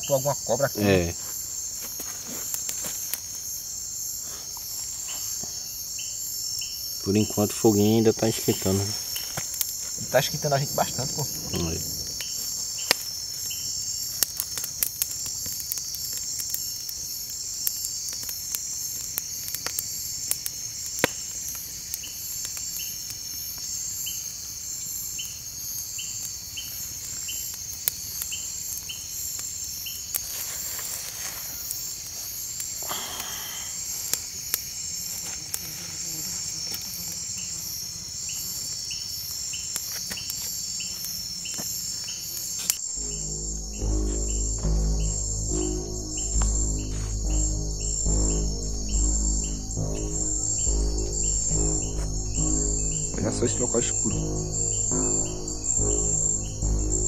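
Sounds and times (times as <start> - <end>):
crickets chirping: 0.0 - 57.0
lower insect chirp: 0.0 - 57.0
campfire popping and crackling: 7.1 - 30.4, 42.7 - 56.1.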